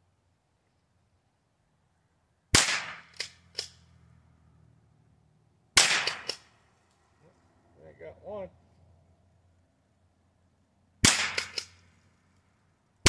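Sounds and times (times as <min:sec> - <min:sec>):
rifle shots: 0:02.5 - 0:03.8, 0:05.8 - 0:06.5, 0:11.0 - 0:11.9
sharp rifle action clacks: 0:03.1 - 0:03.8, 0:11.0 - 0:11.8.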